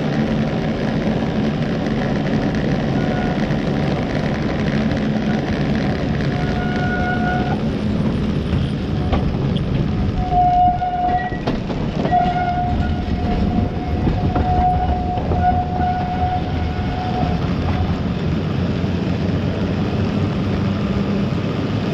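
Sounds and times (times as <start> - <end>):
tram rumbling past: 0.0 - 21.9
high-pitched squeal: 2.7 - 4.1, 6.2 - 18.0.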